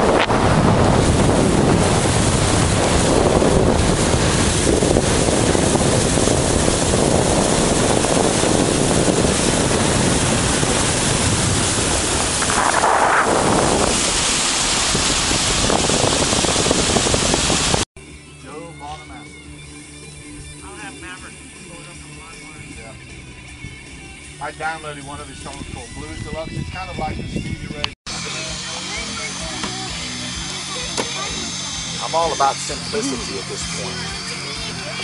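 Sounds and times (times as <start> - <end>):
water noise: 0.0 - 17.9, 28.1 - 35.0
wind rushing over microphone: 0.0 - 17.9, 25.1 - 28.0.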